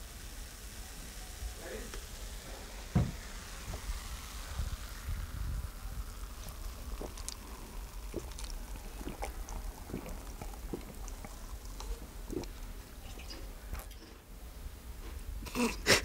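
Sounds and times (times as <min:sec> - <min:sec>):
person swallowing a drink: 0:06.2 - 0:14.1.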